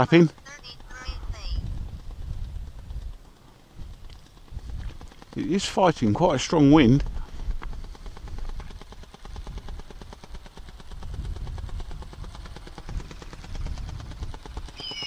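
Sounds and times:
wind buffeting microphone: 0:00.0 - 0:15.0
high whistled call: 0:14.8 - 0:15.0.

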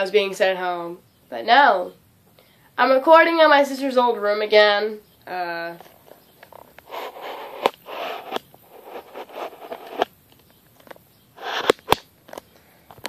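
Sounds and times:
handling noise rustling and scraping: 0:05.7 - 0:13.0
sharp clicks: 0:06.4 - 0:13.0.

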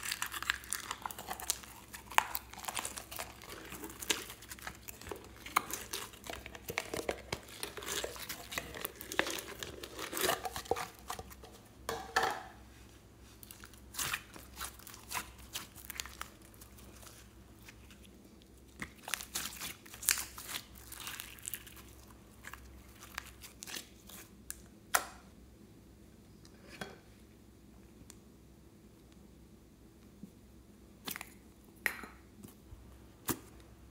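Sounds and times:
slime crackling and popping: 0:00.0 - 0:11.4, 0:13.4 - 0:24.6.

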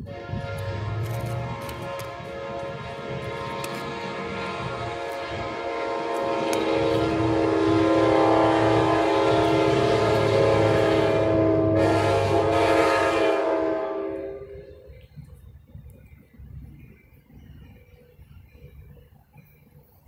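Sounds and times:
train horn chord: 0:00.0 - 0:14.9.

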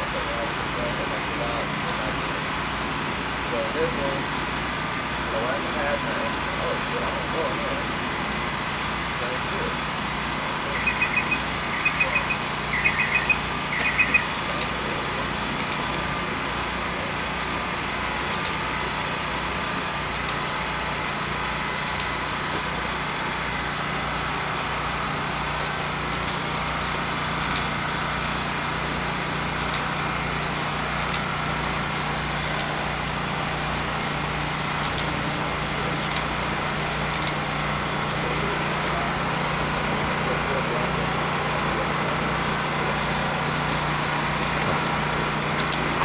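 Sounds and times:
mechanical rumble with low hum: 0:00.0 - 0:46.0
high chirps: 0:10.7 - 0:14.4.

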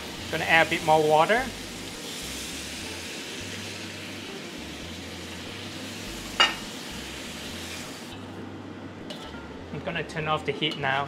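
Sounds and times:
food sizzling in a wok: 0:00.0 - 0:08.2
spatula clinking against wok: 0:06.4 - 0:06.6.

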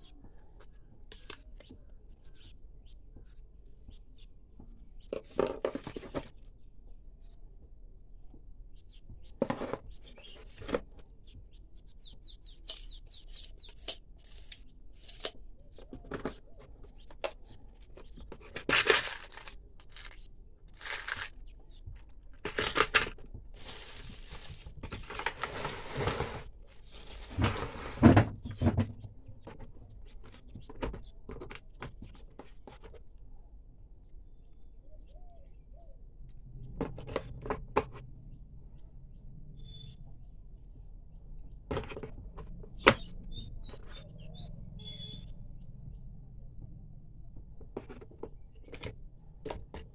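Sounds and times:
plastic parts clicking and knocking: 0:05.0 - 0:06.5, 0:12.6 - 0:25.7, 0:26.4 - 0:33.0, 0:41.7 - 0:44.0, 0:47.4 - 0:49.9
plastic wrapping rustling: 0:18.6 - 0:21.4, 0:22.4 - 0:28.0.

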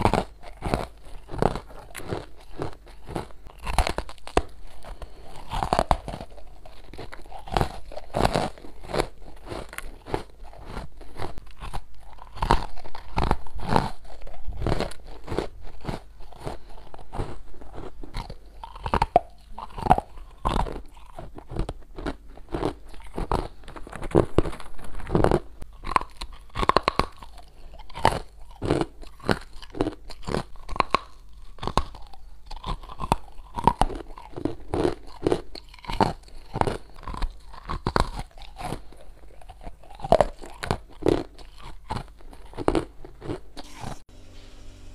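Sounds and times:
chewing crunchy ice: 0:00.0 - 0:44.1.

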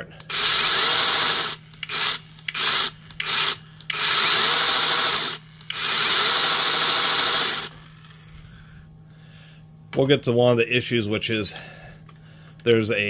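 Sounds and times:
electric chainsaw motor running: 0:00.2 - 0:08.7.

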